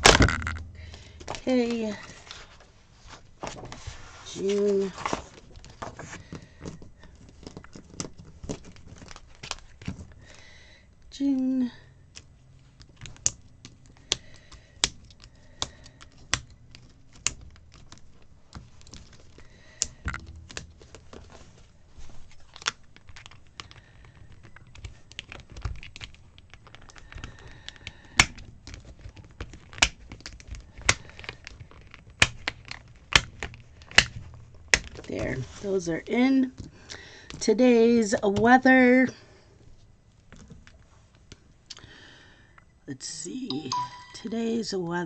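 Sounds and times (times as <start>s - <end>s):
paper and plastic rustling: 1.8s - 10.2s
sharp plastic clicks and snaps: 12.1s - 21.1s, 22.5s - 35.1s.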